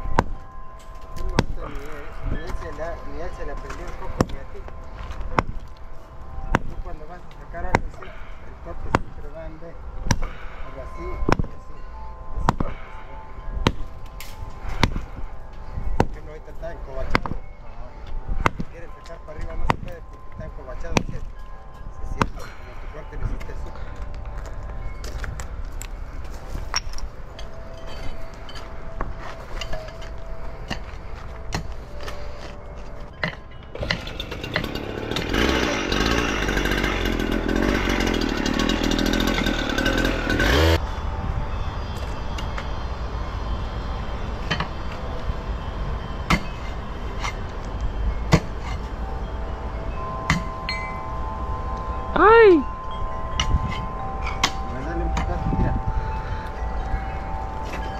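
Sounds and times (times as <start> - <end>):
cut-off saw running: 33.8 - 40.8.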